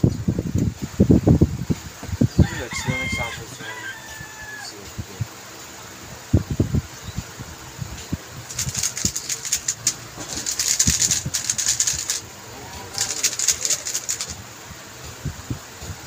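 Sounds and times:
puzzle cube clicking: 8.5 - 12.3, 12.9 - 14.4.

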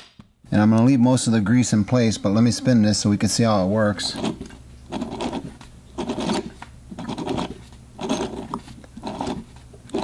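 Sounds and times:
model engine scraping and clicking: 4.0 - 10.0.

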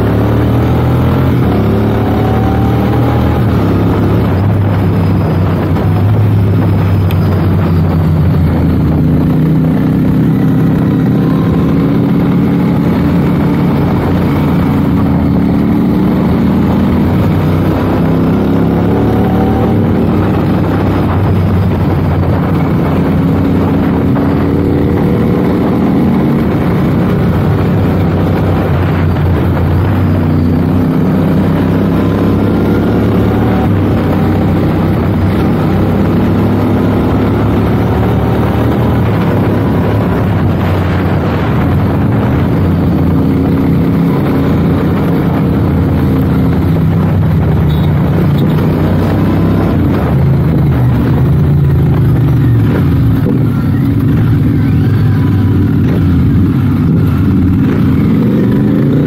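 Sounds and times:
motorcycle engine running: 0.0 - 59.0
wind rush: 0.0 - 59.0.

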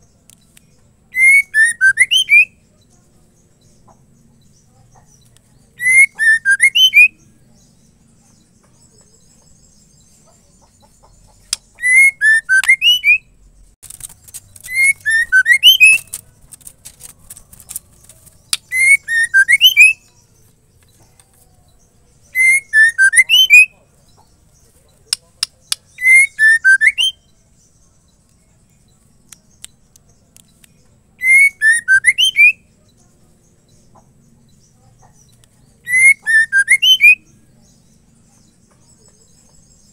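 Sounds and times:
bird whistled calls: 1.1 - 2.6, 5.8 - 7.2, 11.5 - 13.3, 14.6 - 16.2, 18.5 - 20.1, 22.3 - 23.7, 25.7 - 27.3, 31.2 - 32.6, 35.8 - 37.3
sharp clicks: 13.8 - 19.0.

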